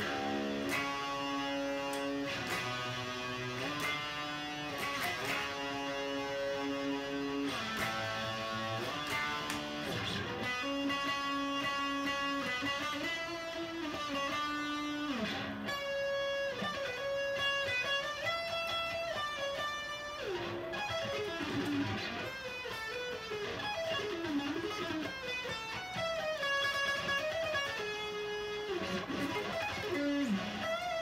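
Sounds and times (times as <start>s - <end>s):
electric guitar playing: 0.0s - 31.0s.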